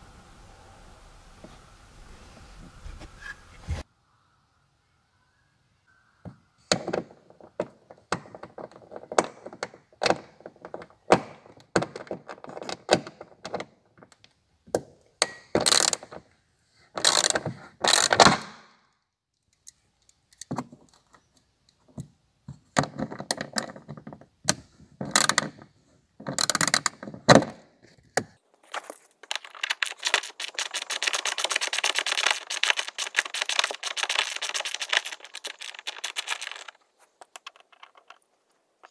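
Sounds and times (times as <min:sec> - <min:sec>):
scraping and rustling: 0:01.4 - 0:03.8, 0:27.8 - 0:38.9
fast even clicking: 0:29.3 - 0:38.9.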